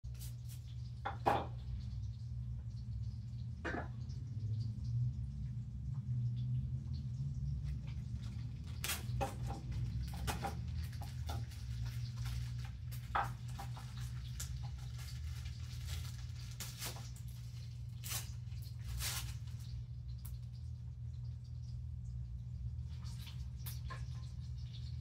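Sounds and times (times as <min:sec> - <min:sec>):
kitchen clicks and taps: 0:13.0 - 0:14.6.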